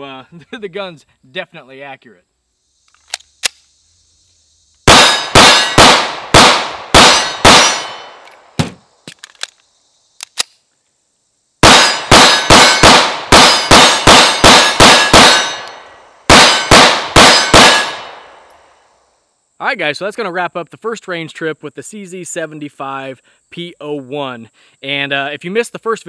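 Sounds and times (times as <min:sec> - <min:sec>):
pistol shots: 0:04.9 - 0:08.8, 0:11.6 - 0:18.4
light gun clicks: 0:09.1 - 0:09.6, 0:10.2 - 0:10.6.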